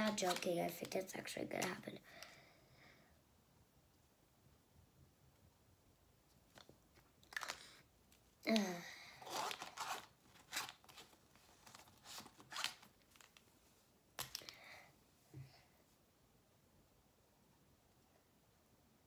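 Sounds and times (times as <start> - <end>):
markers rustling and clattering: 0.0 - 2.0, 6.4 - 13.6, 14.2 - 14.6.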